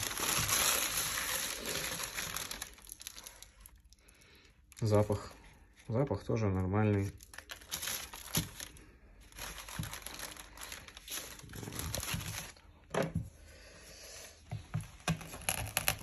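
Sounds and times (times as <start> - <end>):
paper wrapper crinkling: 0.0 - 4.0, 6.2 - 12.8, 15.1 - 16.0.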